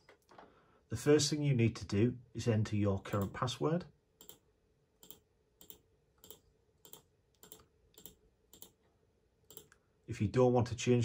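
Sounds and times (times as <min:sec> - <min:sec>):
computer mouse clicks: 0:03.1 - 0:03.4, 0:04.2 - 0:04.4, 0:05.0 - 0:08.8, 0:09.5 - 0:09.8.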